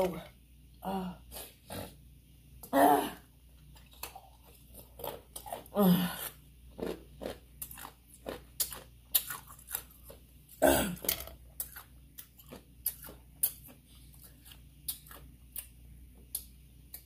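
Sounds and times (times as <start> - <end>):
person chewing: 3.6 - 17.0.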